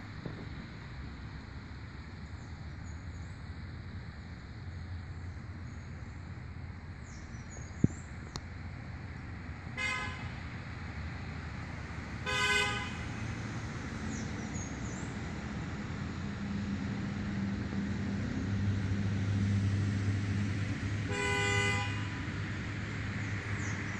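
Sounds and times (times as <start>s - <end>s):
traffic hum: 0.0s - 23.9s
car horn toots: 9.8s - 10.3s, 12.2s - 13.1s, 21.1s - 22.2s.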